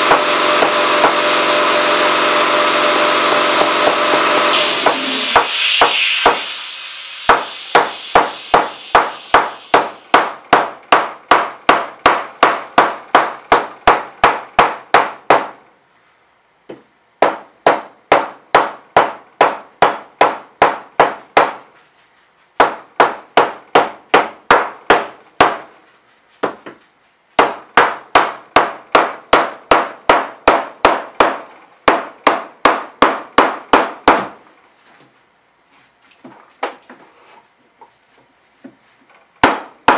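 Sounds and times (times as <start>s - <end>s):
mallet hammering aluminum: 3.3s - 15.6s, 27.4s - 34.3s, 39.4s - 39.9s.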